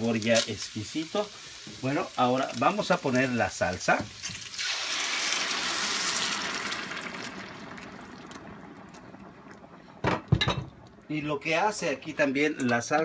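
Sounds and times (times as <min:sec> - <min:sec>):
salsa hissing in hot pot: 0:00.0 - 0:08.8.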